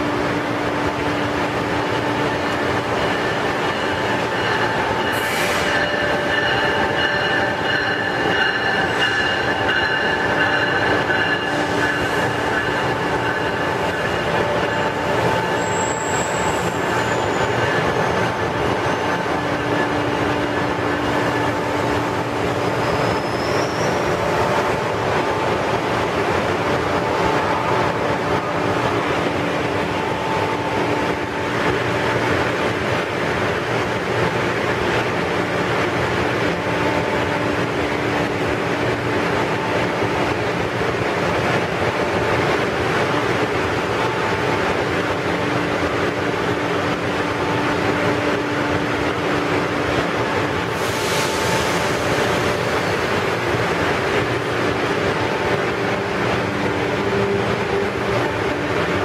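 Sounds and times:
train electrical hum and whine: 0.0 - 59.0.

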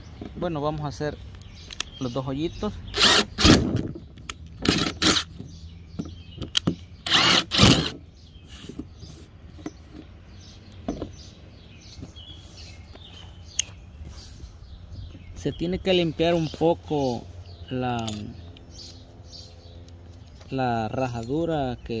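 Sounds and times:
cordless drill boring holes: 2.9 - 3.8, 4.6 - 5.3, 7.0 - 8.0.

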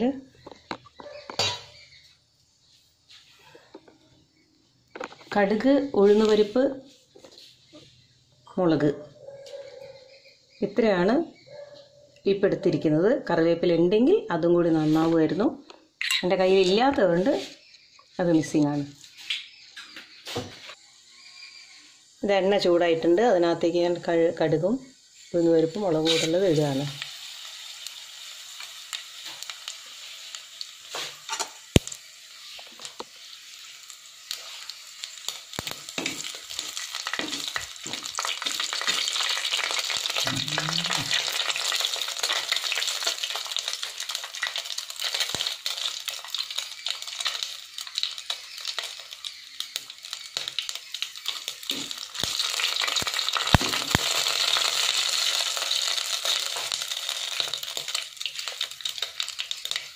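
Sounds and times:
spices sizzling in hot oil: 0.0 - 3.5, 4.2 - 8.1, 14.7 - 59.9
mustard seeds popping: 4.9 - 5.4, 34.2 - 59.9.

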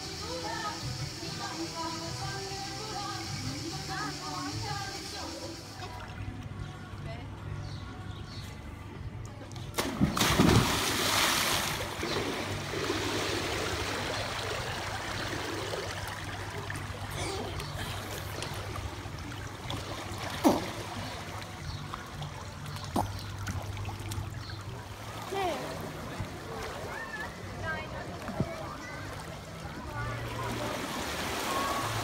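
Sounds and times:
people jumping into pool splash: 9.6 - 21.8, 25.0 - 32.0
splashing and lapping water: 9.6 - 32.0.

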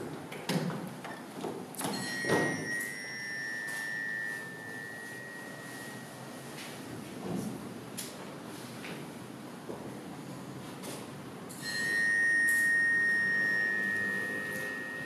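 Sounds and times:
steady high electronic tone: 2.6 - 6.9, 11.5 - 15.0.

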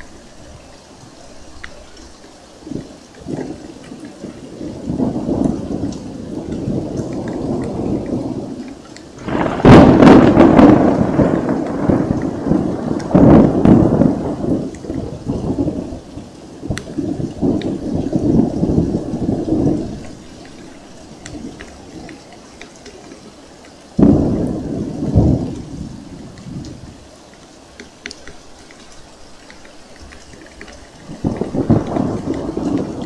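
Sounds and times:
rain falling with drips: 0.0 - 33.0
rolling thunder: 2.6 - 23.4, 24.0 - 27.2, 30.0 - 33.0
sharp loud thunderclap: 4.5 - 8.6, 9.2 - 16.0, 24.0 - 26.9, 31.0 - 33.0.

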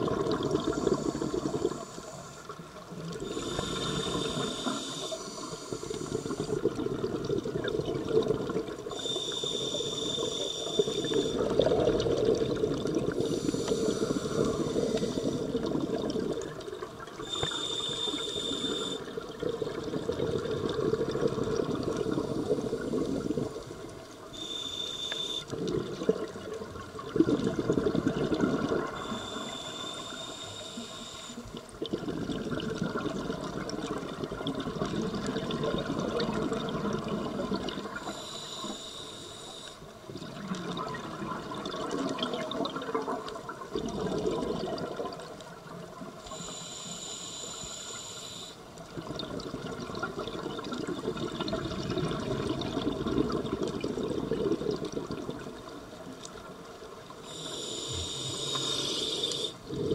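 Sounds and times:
exhaled bubbles underwater: 0.0 - 59.9
regulator inhalation hiss: 0.6 - 2.6, 3.2 - 6.7, 8.9 - 11.5, 13.2 - 15.6, 17.2 - 19.1, 24.3 - 25.6, 28.9 - 31.5, 38.0 - 39.9, 46.2 - 48.6, 57.2 - 59.6.

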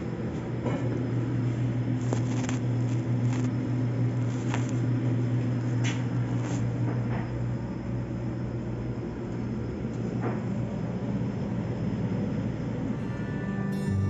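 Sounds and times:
low mechanical hum: 0.0 - 14.0.

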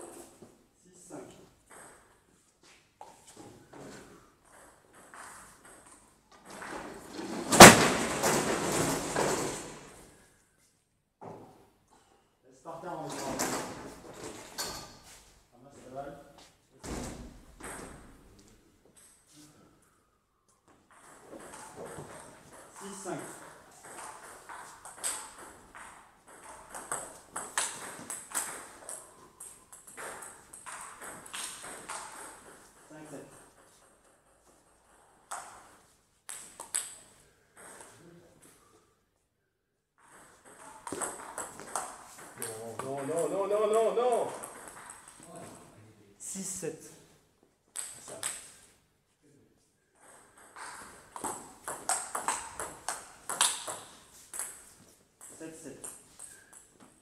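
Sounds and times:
ball bouncing on table: 40.1 - 43.0, 50.3 - 56.7
table tennis ball clicking off bats: 50.4 - 54.6.

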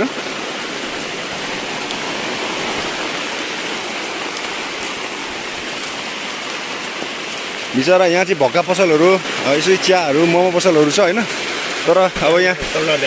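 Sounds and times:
heavy rain hissing: 0.0 - 13.0
faint raindrop ticks: 1.8 - 2.0, 4.2 - 5.0.

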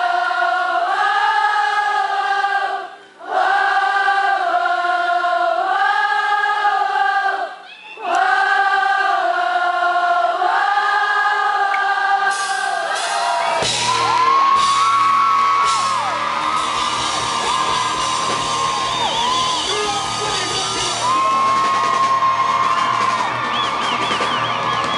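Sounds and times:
choir-like sung chords: 0.0 - 13.8
lead vocal singing: 0.0 - 13.8
rock band with drums: 12.3 - 24.9
crowd cheering: 12.6 - 24.9.

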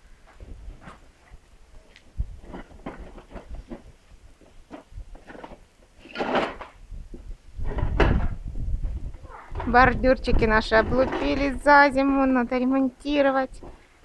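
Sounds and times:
toy car rattling over paving: 2.4 - 6.8, 9.3 - 11.9.

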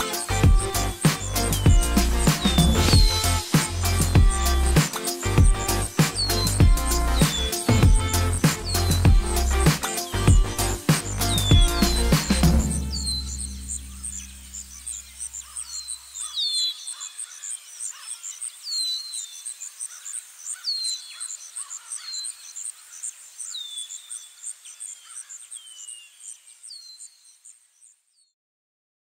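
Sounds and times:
birds whistling: 0.0 - 17.6
insects chirping: 0.0 - 28.0
low music note: 12.5 - 14.7.

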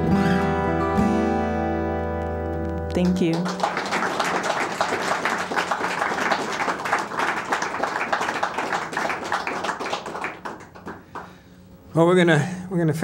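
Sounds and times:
audience applauding: 3.0 - 11.5.

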